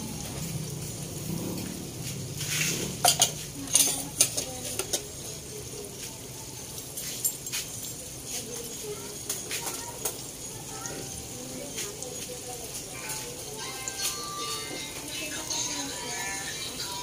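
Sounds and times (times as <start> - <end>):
food deep-frying in oil: 0.0 - 17.0
metal tongs stirring: 2.4 - 5.4, 6.8 - 10.3.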